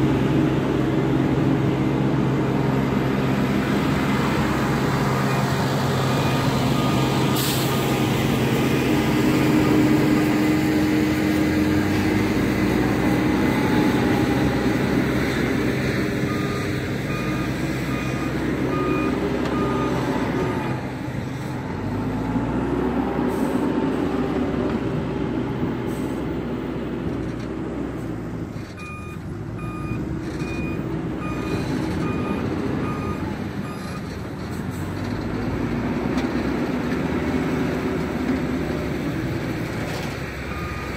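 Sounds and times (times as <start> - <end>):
diesel engine running under load: 0.0 - 40.9
reversing alarm beeping: 16.2 - 20.8, 28.8 - 34.1, 40.5 - 40.9.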